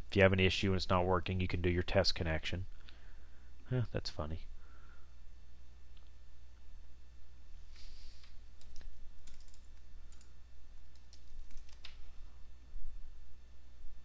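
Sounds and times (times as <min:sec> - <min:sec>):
steady low hum: 0:00.0 - 0:14.0
computer keyboard keystrokes: 0:08.6 - 0:10.3, 0:10.9 - 0:12.0.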